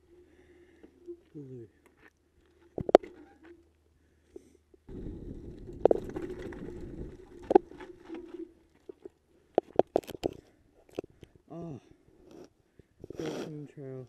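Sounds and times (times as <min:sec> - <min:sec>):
mountain bike rolling on rocky trail: 0:04.9 - 0:11.2.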